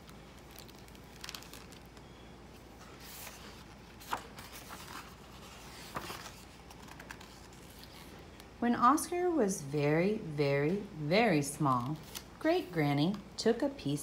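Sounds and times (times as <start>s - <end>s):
paper rustling: 0.0s - 2.0s, 2.6s - 8.2s, 11.6s - 12.3s.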